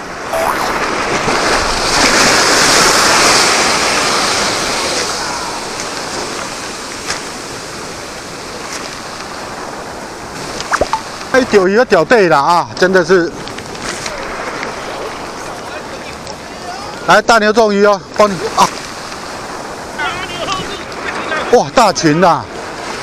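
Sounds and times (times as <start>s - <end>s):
sea surf on rocky shore: 0.0s - 23.0s.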